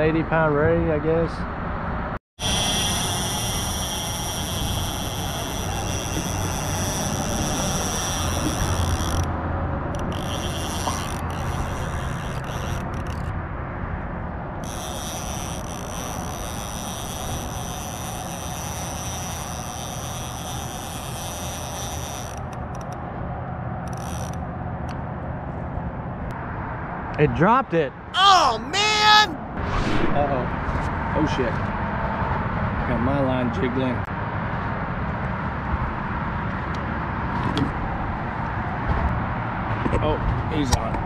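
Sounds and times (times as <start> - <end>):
fishing reel clicker ratcheting: 2.4 - 9.3, 9.9 - 13.3, 14.6 - 23.0, 23.8 - 24.4
low rumble: 29.4 - 31.2.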